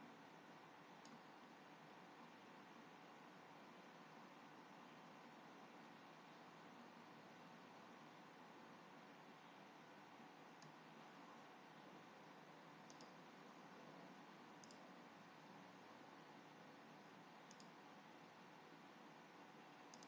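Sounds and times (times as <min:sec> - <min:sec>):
low hiss: 0:00.0 - 0:20.0
faint mouse clicks: 0:01.0 - 0:01.3, 0:10.6 - 0:10.8, 0:12.8 - 0:13.2, 0:14.6 - 0:14.9, 0:17.4 - 0:17.8.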